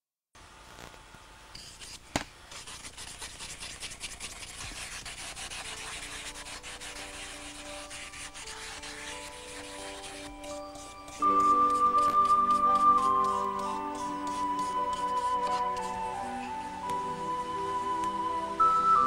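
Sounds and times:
hand rubbing wooden vessel: 0:01.6 - 0:17.0
faint music tones: 0:04.7 - 0:19.0.

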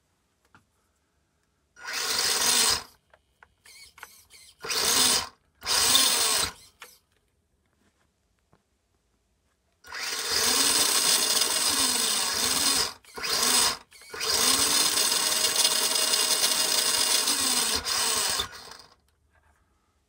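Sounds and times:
electric motor whining: 0:01.8 - 0:02.9, 0:03.7 - 0:07.0, 0:09.9 - 0:18.9.

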